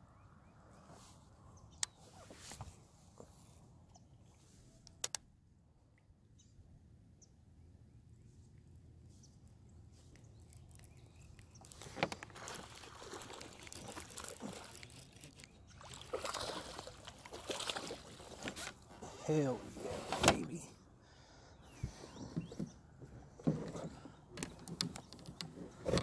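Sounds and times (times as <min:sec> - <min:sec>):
water splashing: 0:10.1 - 0:19.1.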